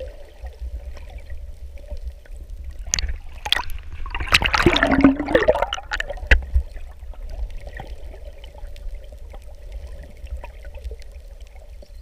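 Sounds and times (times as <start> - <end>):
seawater splashing and bubbling: 0.0 - 12.0.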